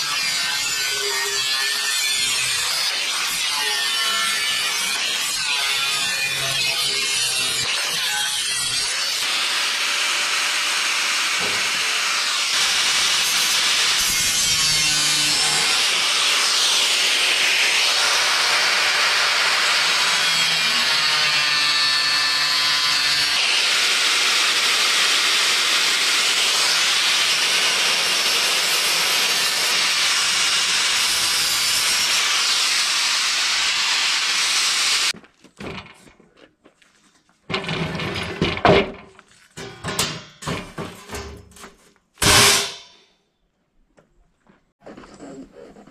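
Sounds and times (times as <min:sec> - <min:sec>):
angle grinder cutting sheet steel: 0:00.0 - 0:35.2, 0:42.2 - 0:43.0.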